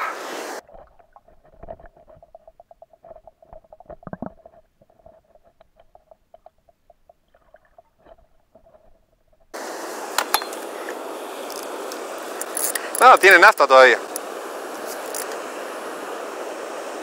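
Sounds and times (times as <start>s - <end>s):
small waterfall rushing: 0.0s - 0.6s, 9.6s - 17.0s
muffled underwater ticking: 0.6s - 9.6s.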